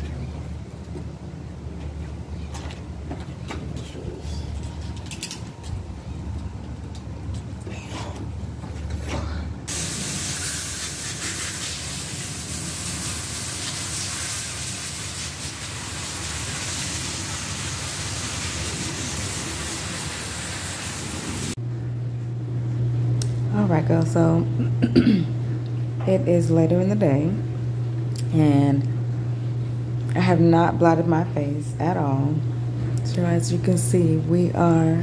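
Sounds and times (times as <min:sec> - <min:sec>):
hose nozzle spraying water: 0:09.7 - 0:21.5.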